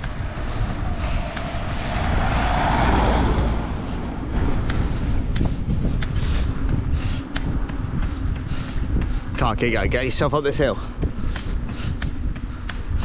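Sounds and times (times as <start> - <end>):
road vehicle passing: 0.0 - 8.0
low wind rumble: 0.0 - 13.0.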